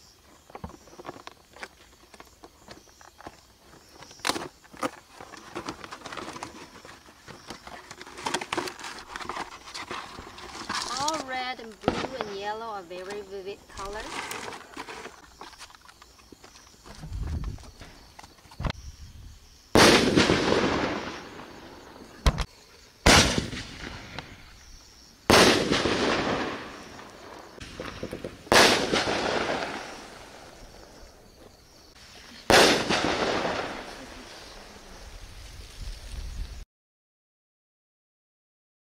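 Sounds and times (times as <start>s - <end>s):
firework shells bursting: 19.7s - 22.5s, 23.1s - 24.5s, 25.2s - 30.7s, 32.4s - 34.0s
firework launch crack: 19.7s - 24.5s, 25.2s - 30.6s, 32.4s - 34.5s.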